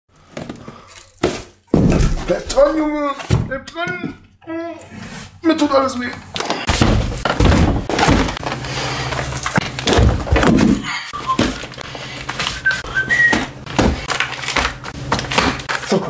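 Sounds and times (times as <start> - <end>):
cardboard boxes thudding: 1.2 - 2.5, 6.6 - 8.7, 9.3 - 11.8, 12.4 - 15.7.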